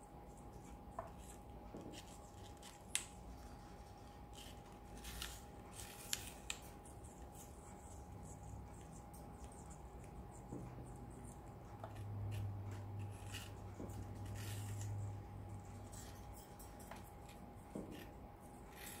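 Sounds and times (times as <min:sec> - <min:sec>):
steady low hum: 0:00.0 - 0:19.0
parrot crunching apple: 0:01.0 - 0:19.0.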